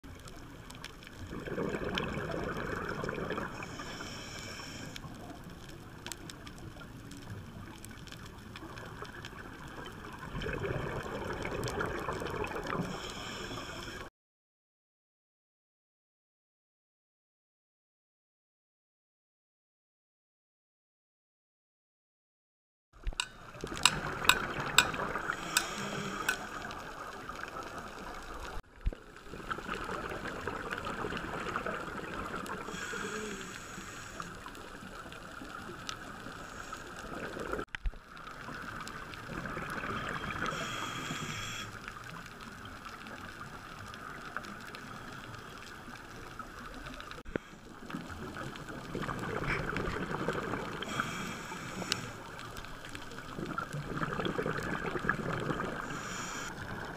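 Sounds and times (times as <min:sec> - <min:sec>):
exhaled bubbles: 0:01.0 - 0:13.3, 0:23.2 - 0:56.9
diver regulator breathing: 0:03.3 - 0:05.2, 0:12.7 - 0:14.1, 0:24.8 - 0:27.0, 0:32.6 - 0:34.6, 0:36.2 - 0:37.6, 0:40.4 - 0:41.9, 0:50.4 - 0:52.6, 0:55.5 - 0:56.7.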